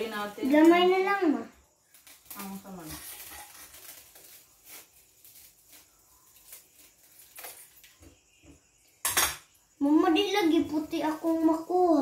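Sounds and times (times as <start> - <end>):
dry noodles crackling while cut: 0.0 - 8.4.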